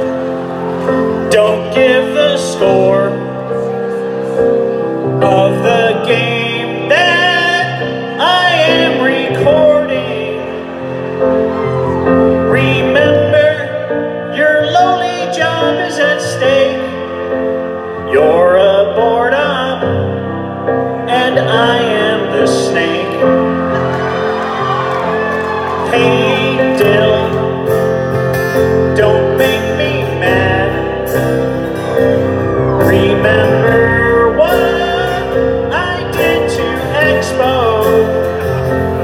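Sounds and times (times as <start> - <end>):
man singing into microphone: 0.0 - 24.0, 25.8 - 39.0
guitars: 21.2 - 39.0.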